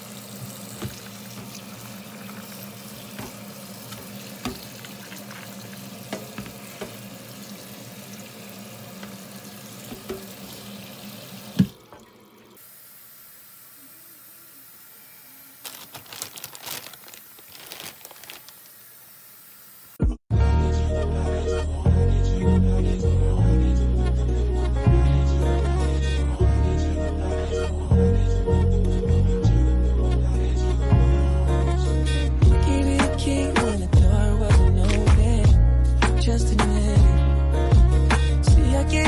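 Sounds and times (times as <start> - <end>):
tap water running onto beans: 0.0 - 16.0
plastic bags crinkling: 15.5 - 19.0.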